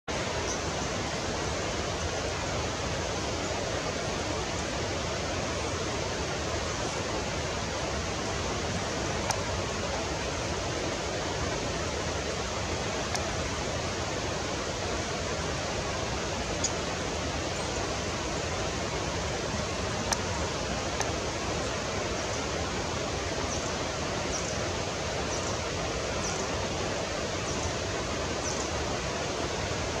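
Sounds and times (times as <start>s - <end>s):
steady rushing noise: 0.1s - 30.0s.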